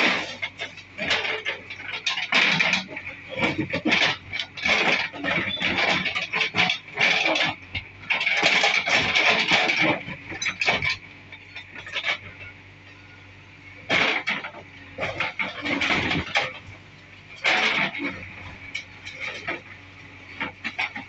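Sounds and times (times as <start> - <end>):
bricks clattering and crashing: 0.0 - 12.3, 13.9 - 16.7
diesel engine humming: 0.0 - 21.0.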